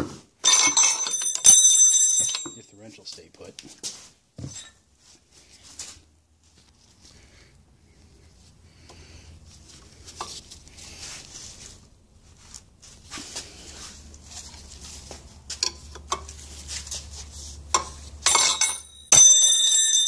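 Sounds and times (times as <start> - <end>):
gloved hands rustling: 8.3 - 18.2.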